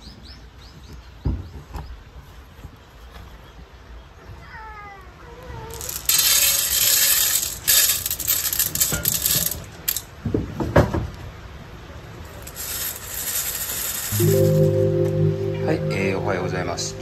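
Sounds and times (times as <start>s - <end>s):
kibble rattling into metal bowl: 5.7s - 10.1s, 12.3s - 14.6s.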